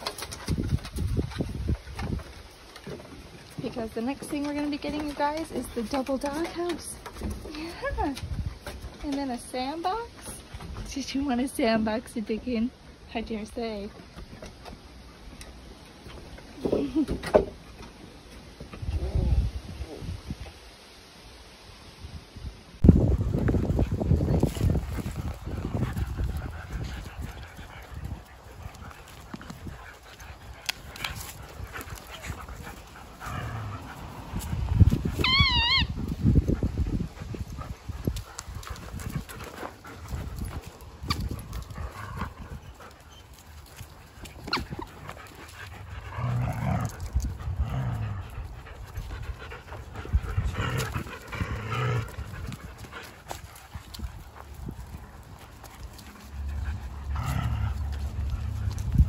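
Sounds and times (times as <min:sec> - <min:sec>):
puppies scuffling: 0:00.0 - 0:12.6, 0:22.8 - 0:59.0
puppies panting: 0:00.0 - 0:16.3, 0:23.0 - 0:59.0
puppy vocal noises: 0:23.7 - 0:36.2, 0:37.1 - 0:59.0
puppy whining: 0:35.2 - 0:36.1.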